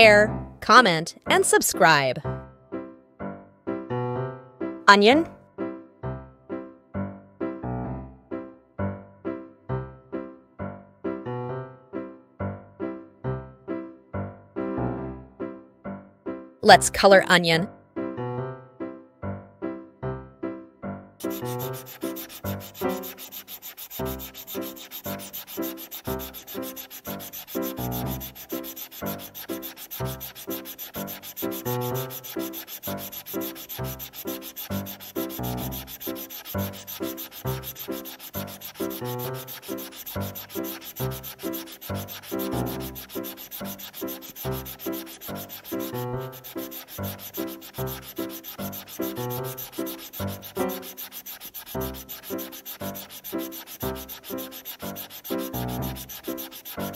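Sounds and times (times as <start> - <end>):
stylus scrubbing on tablet screen: 21.2 - 56.9.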